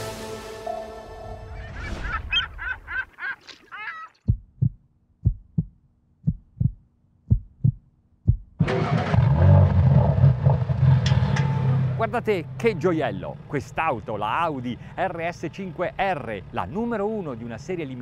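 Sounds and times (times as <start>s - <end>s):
heartbeat thumps: 4.3s - 8.6s
loud car engine: 8.6s - 18.0s.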